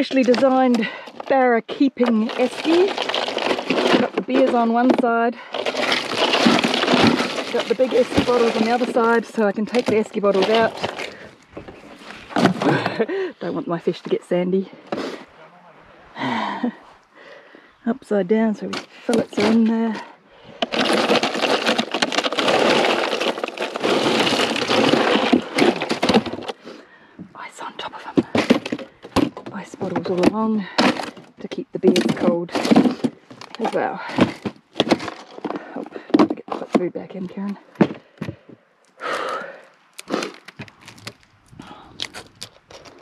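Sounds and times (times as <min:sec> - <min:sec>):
ice rattling and crunching: 0:00.0 - 0:13.3, 0:18.6 - 0:26.8, 0:27.4 - 0:38.0, 0:38.9 - 0:43.0
rustling scrape: 0:02.1 - 0:12.9, 0:20.6 - 0:26.7.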